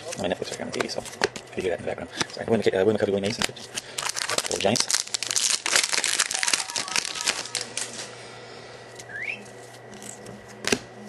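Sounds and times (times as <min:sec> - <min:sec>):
low steady hum: 0:00.0 - 0:11.0
foil wrapper crinkling: 0:03.2 - 0:08.1.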